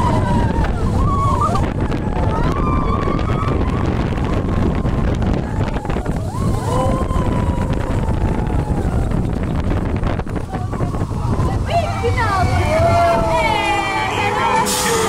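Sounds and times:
riders screaming: 0:00.0 - 0:09.3
roller coaster rumble: 0:00.0 - 0:15.0
wind buffeting microphone: 0:00.0 - 0:15.0.

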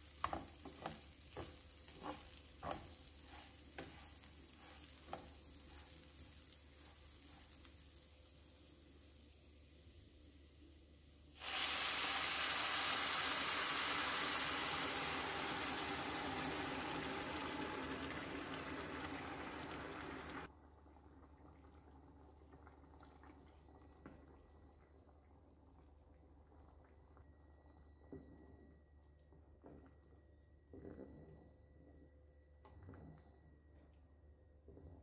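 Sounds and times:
water pouring into pan: 0:11.4 - 0:20.5.

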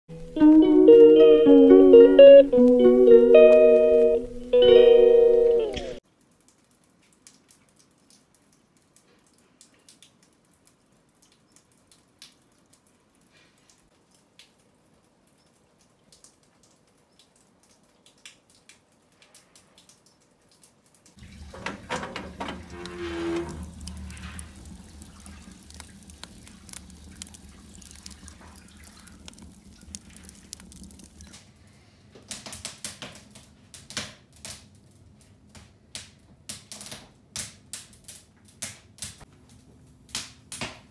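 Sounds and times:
rain drops ticking: 0:00.1 - 0:40.8
clicks and ticks: 0:22.5 - 0:31.5.

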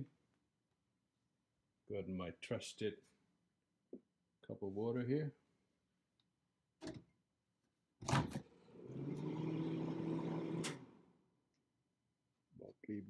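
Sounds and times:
microwave humming: 0:08.2 - 0:11.2.

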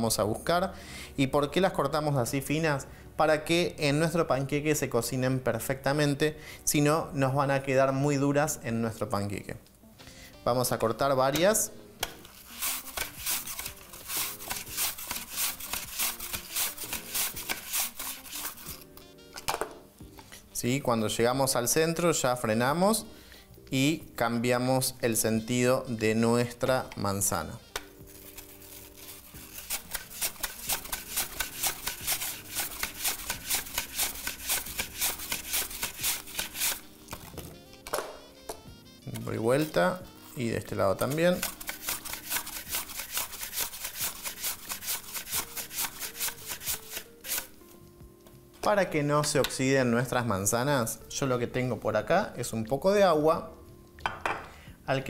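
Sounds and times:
apple rasping on mandoline blade: 0:12.2 - 0:18.9, 0:27.8 - 0:37.3, 0:39.1 - 0:47.6.

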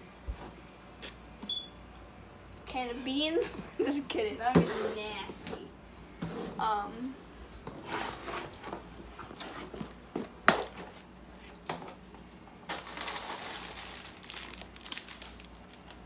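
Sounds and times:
plastic candy bag crinkling: 0:12.6 - 0:16.0.

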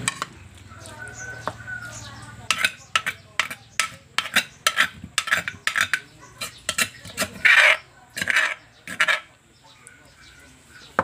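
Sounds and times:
spoon scraping and clinking: 0:02.5 - 0:09.3.

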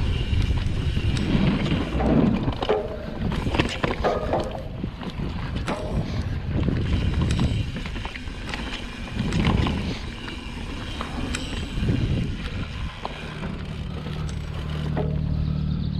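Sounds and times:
bike clicks and rattles: 0:00.0 - 0:15.9
bike tyre noise on dirt: 0:00.0 - 0:15.9
wind gusts on microphone: 0:04.2 - 0:08.0, 0:09.0 - 0:10.2, 0:11.5 - 0:13.6.

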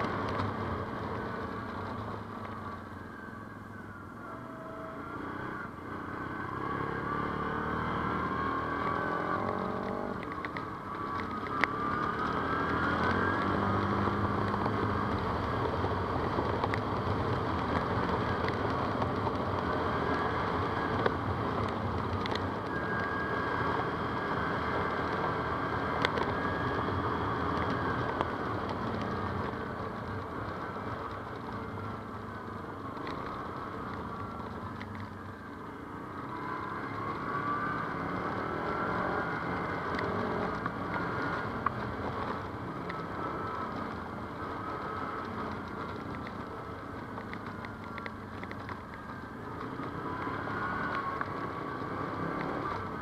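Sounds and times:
atv engine revving: 0:04.4 - 0:10.5, 0:36.3 - 0:43.8.

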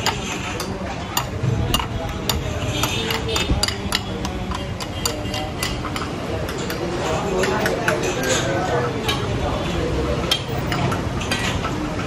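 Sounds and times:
spoon clinking on ceramic bowl: 0:00.0 - 0:08.4.

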